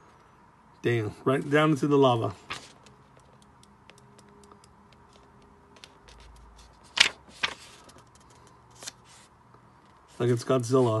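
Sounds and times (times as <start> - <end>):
book page turning: 2.4 - 3.0, 5.8 - 9.3
sharp paper flicks: 6.2 - 8.0.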